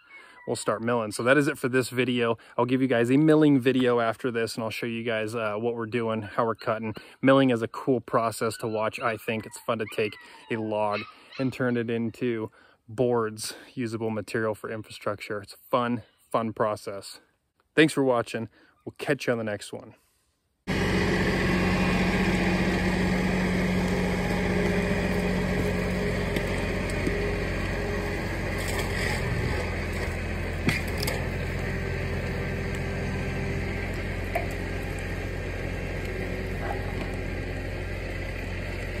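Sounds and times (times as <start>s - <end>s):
tractor diesel engine running: 20.7s - 39.0s.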